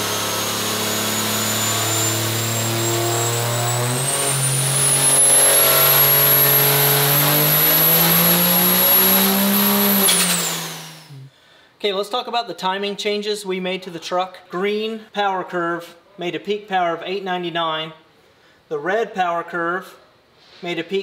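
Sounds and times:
diesel engine revving at full throttle: 0.0s - 11.3s
high turbo whistle: 0.0s - 11.3s.

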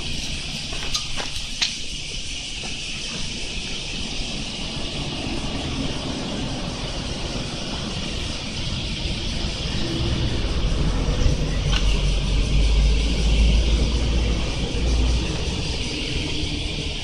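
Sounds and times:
insects droning: 0.0s - 17.0s
road traffic rumble: 0.0s - 17.0s.

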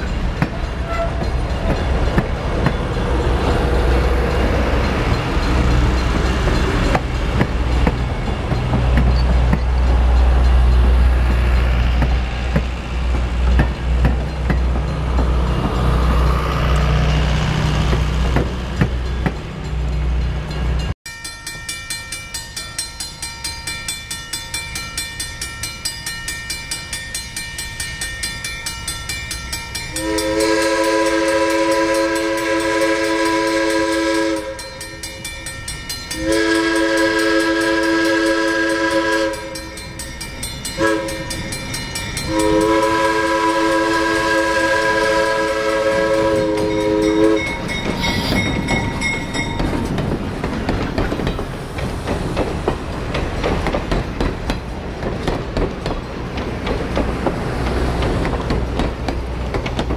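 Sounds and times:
crossing bell ringing: 0.0s - 51.6s
train coaches rumbling over rails: 0.0s - 59.9s
locomotive horn: 0.7s - 1.4s, 30.0s - 34.8s, 36.1s - 39.8s, 40.8s - 41.3s, 42.3s - 48.4s.

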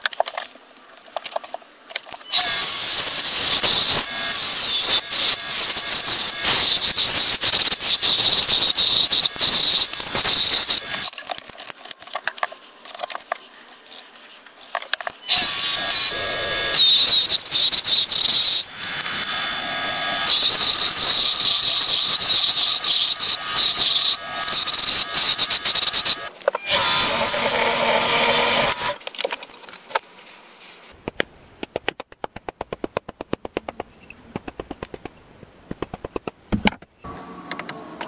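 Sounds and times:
wood lathe whining: 2.4s - 11.1s, 15.3s - 29.0s.

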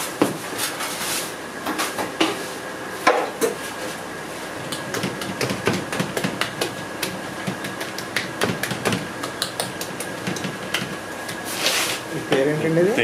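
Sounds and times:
hand patting food in steel tray: 4.6s - 11.5s.

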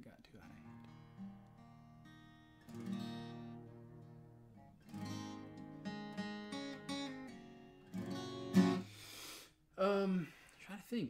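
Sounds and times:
acoustic guitar strumming: 0.5s - 9.1s.

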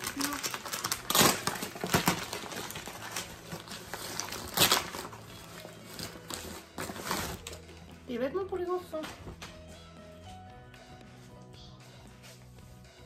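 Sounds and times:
plastic mailing bag crinkling: 0.0s - 7.7s.

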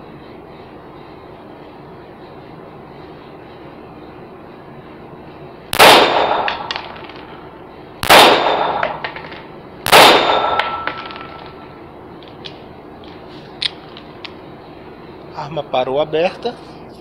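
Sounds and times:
pistol shots echoing: 5.8s - 7.2s, 8.0s - 11.4s.

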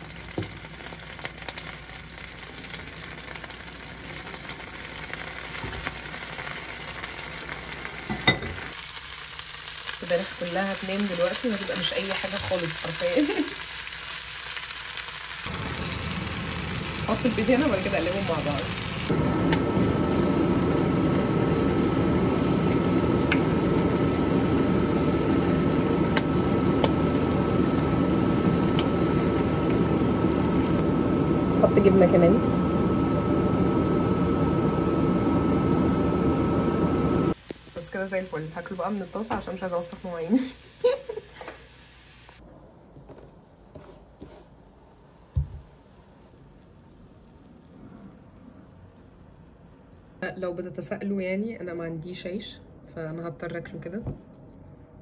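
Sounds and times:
spinach sizzling in a frying pan: 0.0s - 42.4s
fan-like whirring hum: 10.4s - 46.7s.

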